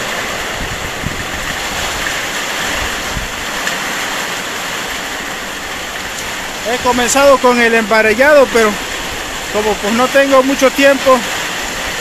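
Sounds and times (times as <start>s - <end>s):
wind rumble on microphone: 0.0s - 9.9s
heavy rain on foliage: 0.0s - 12.0s
strong wind: 0.0s - 12.0s.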